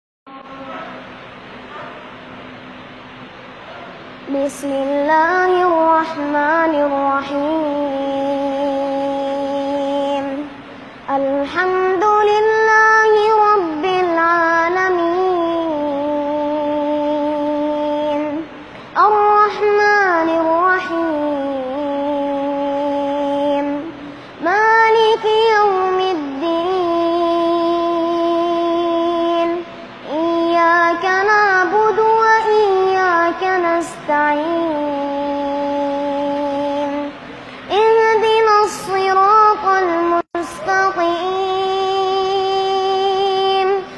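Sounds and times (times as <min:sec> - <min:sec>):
child chanting recitation: 0:00.3 - 0:01.1, 0:04.3 - 0:43.9.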